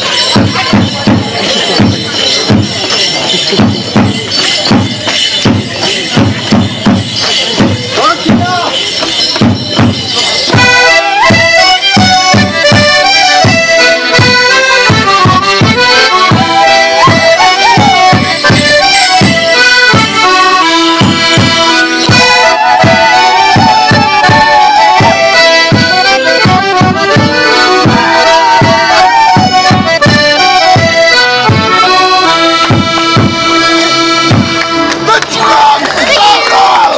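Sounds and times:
accordion: 0:00.0 - 0:36.9
bass drum beat: 0:03.6 - 0:31.8, 0:32.6 - 0:33.5
fiddle: 0:10.4 - 0:35.2.

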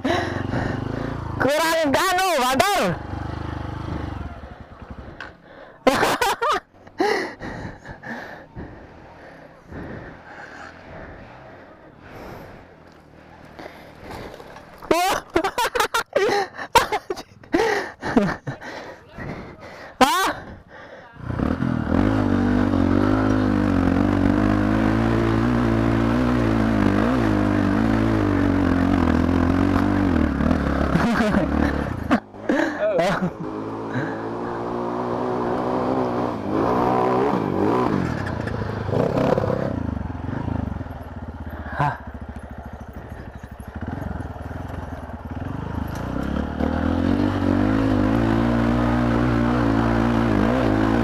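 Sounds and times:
motorcycle engine revving: 0:00.0 - 0:06.6, 0:21.2 - 0:51.0
person gasping and exclaiming: 0:17.6 - 0:21.3.

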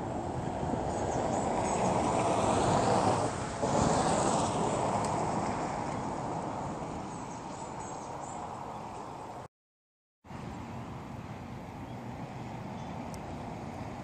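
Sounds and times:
passing vehicle rush: 0:00.0 - 0:09.5.

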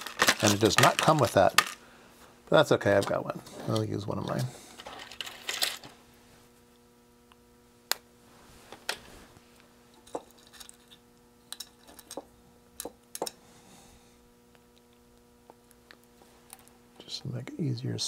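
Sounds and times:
small parts and tools clicking: 0:00.0 - 0:01.8, 0:04.3 - 0:05.9
faint steady hum: 0:00.0 - 0:18.0.

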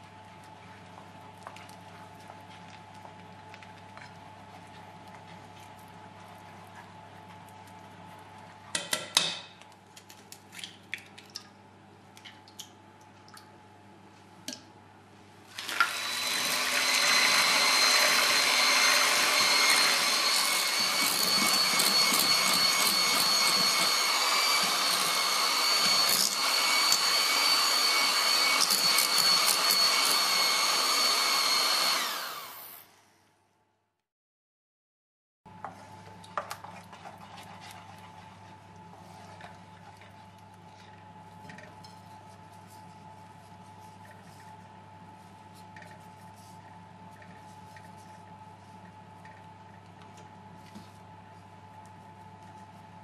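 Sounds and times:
wooden spoon stirring in saucepan: 0:00.1 - 0:09.0, 0:35.5 - 0:49.9
electric hand mixer whining: 0:15.5 - 0:33.0.

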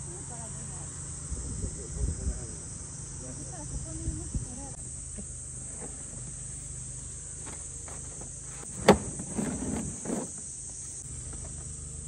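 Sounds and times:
high insect drone: 0:00.0 - 0:12.0
crates scraping and bumping: 0:05.6 - 0:11.8.

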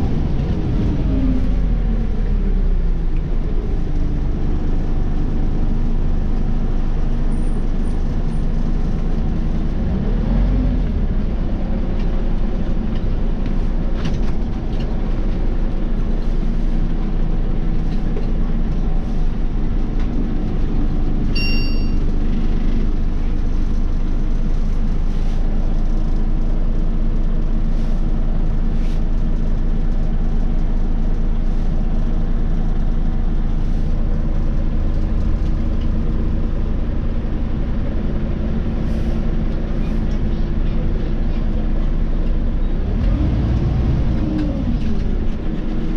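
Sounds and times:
bus engine and road drone: 0:00.0 - 0:45.9
short electronic beep: 0:21.3 - 0:22.1.

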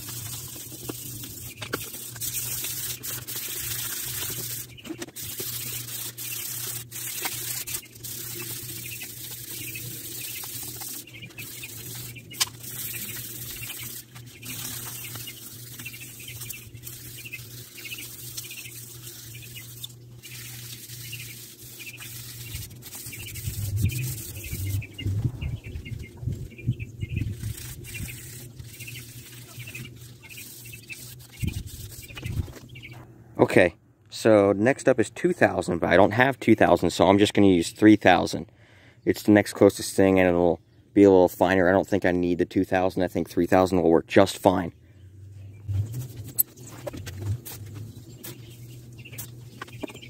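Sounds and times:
sandpaper scraping metal: 0:00.0 - 0:25.7, 0:27.2 - 0:32.6
low bumps: 0:23.2 - 0:27.5.

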